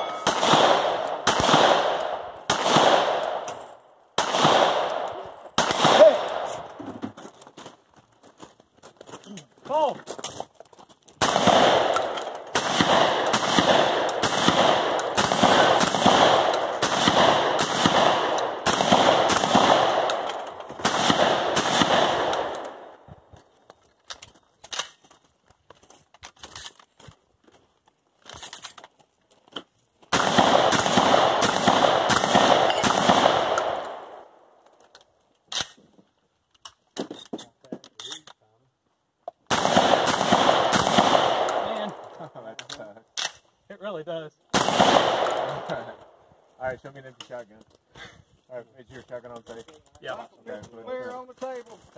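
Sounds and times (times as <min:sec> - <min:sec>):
shotgun blasts echoing: 0:00.0 - 0:03.5, 0:04.2 - 0:06.8, 0:11.2 - 0:23.0, 0:30.1 - 0:34.4, 0:39.5 - 0:42.0, 0:44.5 - 0:46.0
shells loading clicks: 0:24.0 - 0:25.2, 0:34.7 - 0:35.8, 0:42.6 - 0:43.5.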